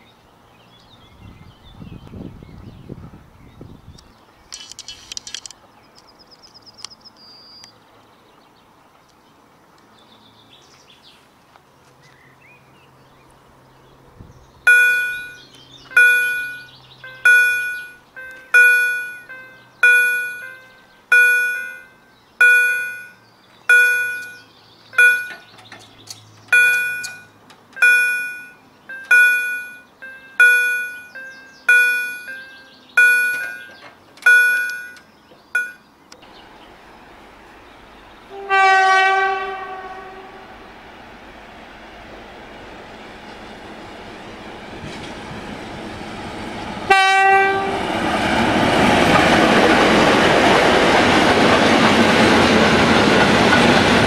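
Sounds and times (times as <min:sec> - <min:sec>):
birds chirping: 0:00.0 - 0:38.5
level crossing warning bell: 0:14.7 - 0:25.6, 0:26.5 - 0:35.9.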